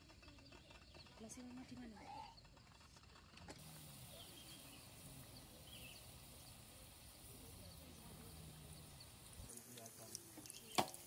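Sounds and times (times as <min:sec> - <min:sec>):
fries frying in hot oil: 0:03.6 - 0:11.0.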